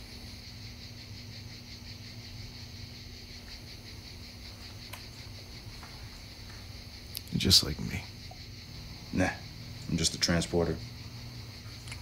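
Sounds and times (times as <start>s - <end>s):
faint low hum: 0.0s - 12.0s
high-pitched insect chorus: 0.0s - 12.0s.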